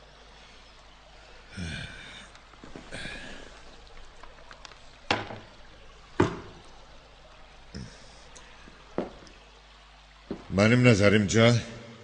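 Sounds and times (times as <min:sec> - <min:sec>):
low vocal sounds: 0:00.5 - 0:04.4, 0:07.7 - 0:08.8.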